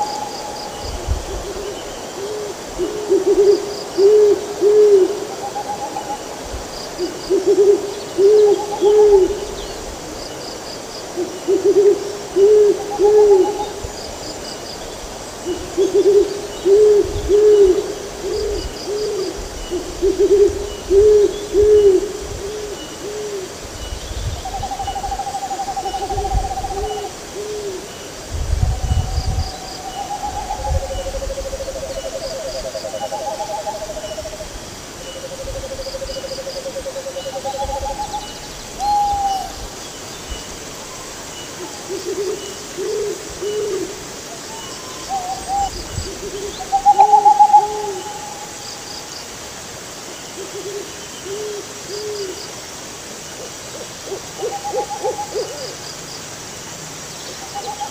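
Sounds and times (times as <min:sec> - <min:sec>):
owls hooting: 0:44.5 - 0:48.6, 0:54.1 - 0:55.7.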